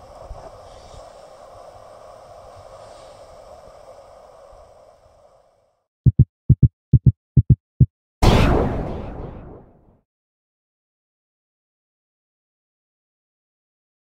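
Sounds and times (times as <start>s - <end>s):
wind and water hiss: 0.0s - 5.9s
heartbeat thumps: 6.0s - 8.0s.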